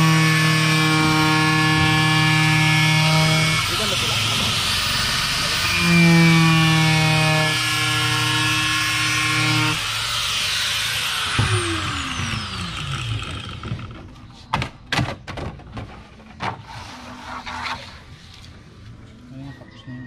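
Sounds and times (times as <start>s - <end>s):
angle grinder running: 0.0s - 14.0s.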